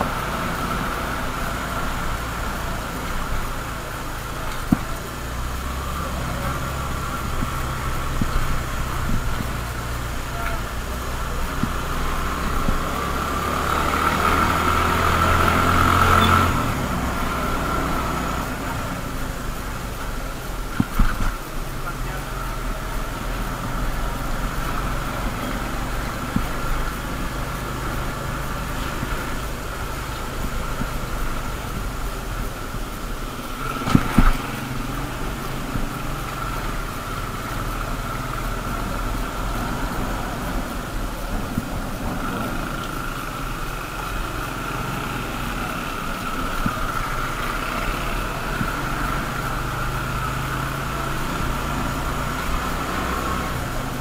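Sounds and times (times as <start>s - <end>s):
motorcycle engine running: 0.0s - 54.0s
motorcycle passing: 0.0s - 54.0s
steady whine: 0.0s - 54.0s
sharp thumps: 28.7s - 36.8s.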